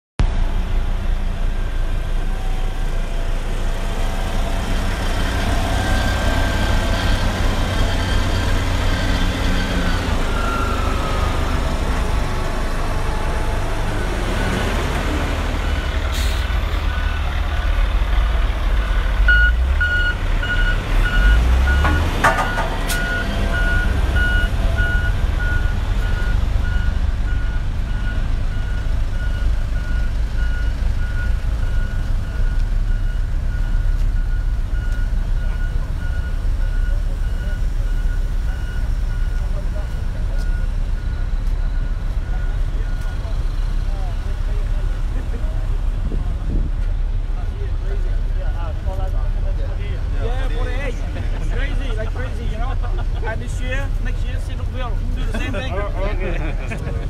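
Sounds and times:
diesel road roller engines rumbling: 0.2s - 57.0s
reversing alarm beeping: 4.0s - 14.7s, 19.2s - 43.6s.

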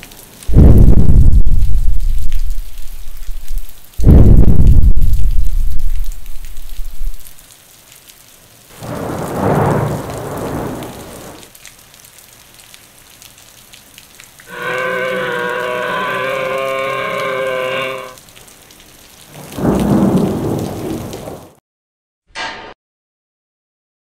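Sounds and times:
rain hiss: 0.0s - 21.6s
thunder rumbling: 0.5s - 7.3s, 8.8s - 11.4s, 19.3s - 21.6s
long steady pitched cry: 14.5s - 18.2s.

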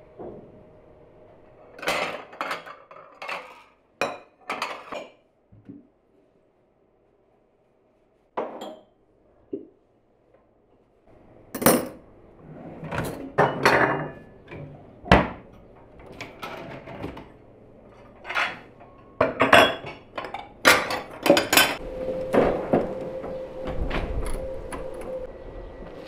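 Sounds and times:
cutlery clinking in a drawer: 1.8s - 5.2s, 18.0s - 21.8s.

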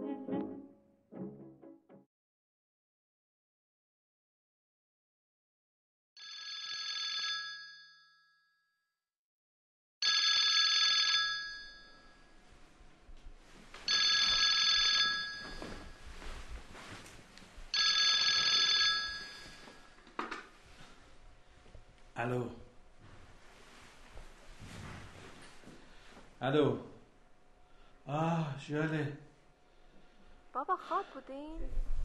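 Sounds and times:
telephone ringing: 6.2s - 7.9s, 10.0s - 12.2s, 13.9s - 16.0s, 17.8s - 20.0s.

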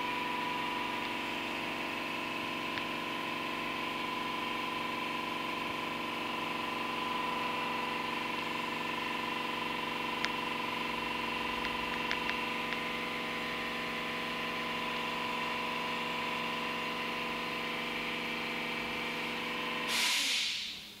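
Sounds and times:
loud burst of hiss: 19.9s - 20.9s.

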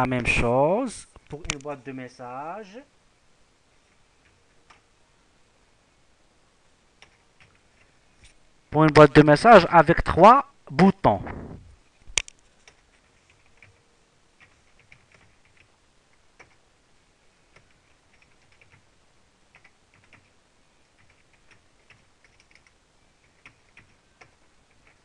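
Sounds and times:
faint keyboard typing: 1.2s - 1.9s, 3.8s - 4.9s, 7.0s - 9.0s, 12.0s - 18.9s, 19.5s - 25.0s.

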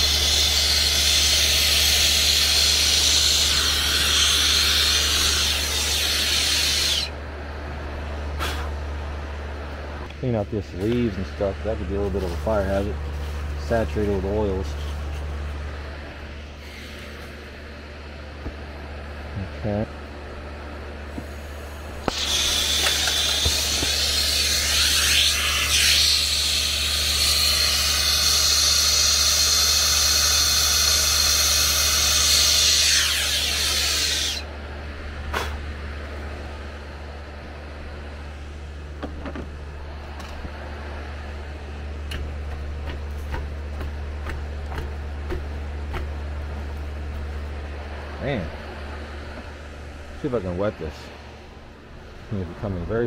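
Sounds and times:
low hum: 0.1s - 25.7s, 33.4s - 53.0s
torch flame hissing: 21.2s - 26.2s.

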